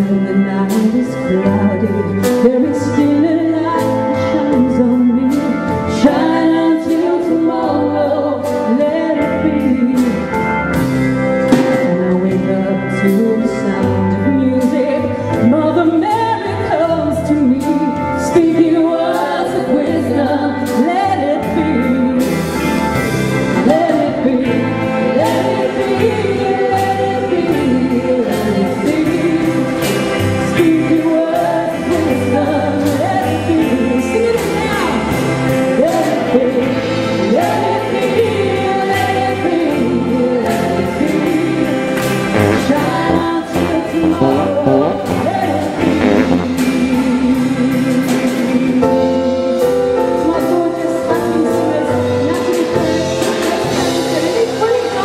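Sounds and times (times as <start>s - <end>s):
gospel choir with band: 36.8s - 49.4s.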